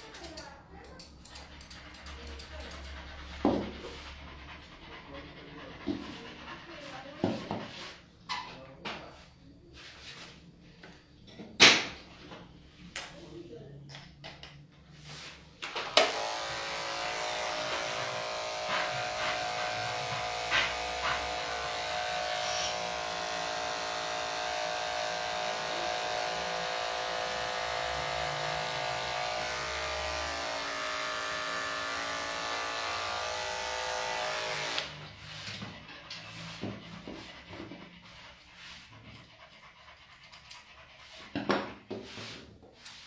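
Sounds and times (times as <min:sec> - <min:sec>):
electric clipper motor hum: 0:15.9 - 0:35.0.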